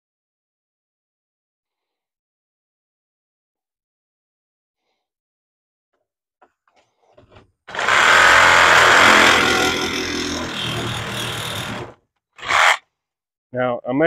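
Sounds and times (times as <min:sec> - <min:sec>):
power cutting tool running: 0:07.7 - 0:12.8.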